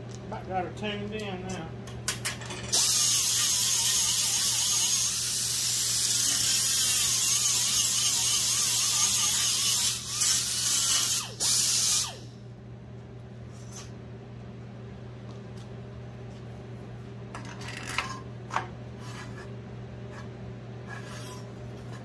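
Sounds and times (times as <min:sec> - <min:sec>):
air grinder whirring on wood: 0:02.7 - 0:12.3.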